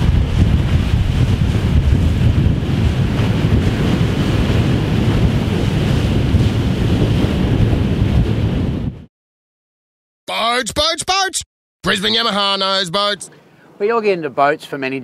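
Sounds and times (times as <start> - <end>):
rushing water and spray: 0.0 - 7.5
wind buffeting microphone: 0.0 - 9.1.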